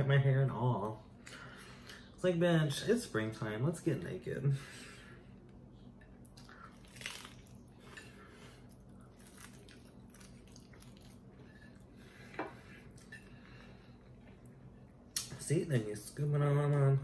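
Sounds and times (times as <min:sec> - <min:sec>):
crunchy taco being chewed: 0:06.2 - 0:12.0.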